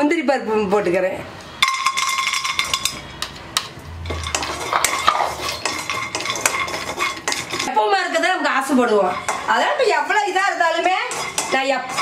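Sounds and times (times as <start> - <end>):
cashews clattering into a pan: 1.6 - 7.7
wooden spatula scraping a pan: 4.0 - 12.0.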